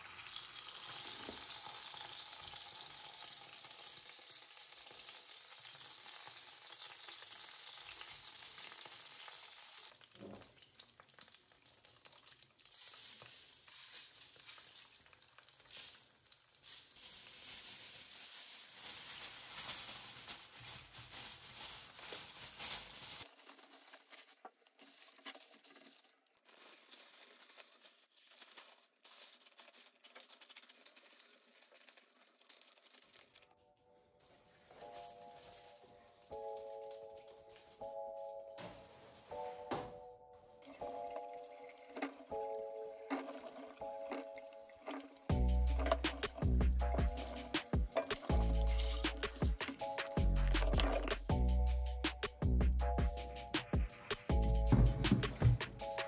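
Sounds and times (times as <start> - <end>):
food sizzling in a pan: 0.0 - 23.3.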